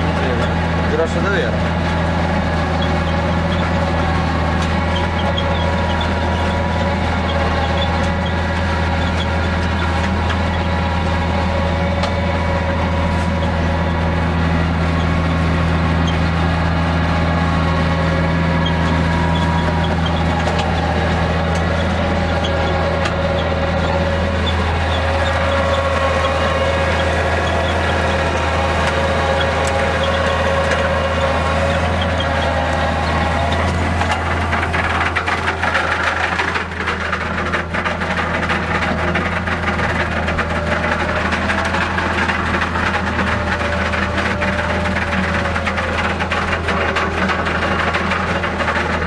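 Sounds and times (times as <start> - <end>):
tractor diesel engine droning: 0.0 - 49.0.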